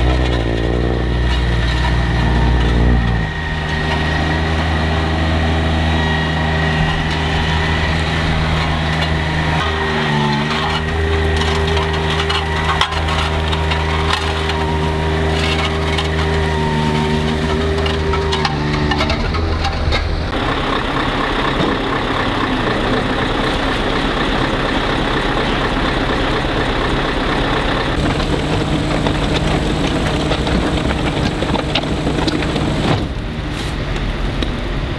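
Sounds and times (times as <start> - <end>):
diesel engine running: 0.0 - 34.9
crackly crunching noise: 6.2 - 20.4, 28.0 - 33.2.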